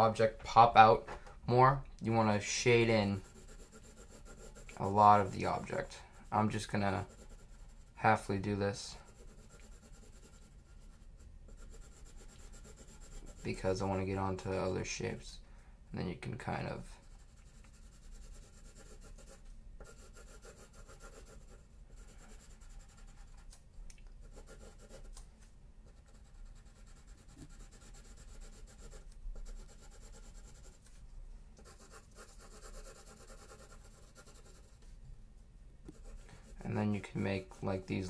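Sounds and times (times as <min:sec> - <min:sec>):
pencil shading on paper: 0:03.1 - 0:08.0, 0:08.9 - 0:13.5, 0:17.0 - 0:23.4, 0:24.2 - 0:25.1, 0:25.9 - 0:30.8, 0:31.6 - 0:34.8.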